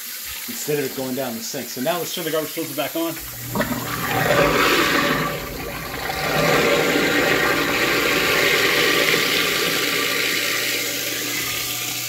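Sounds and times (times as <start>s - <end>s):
tap water rushing: 0.0s - 12.0s
garbage disposal motor hum: 3.2s - 12.0s.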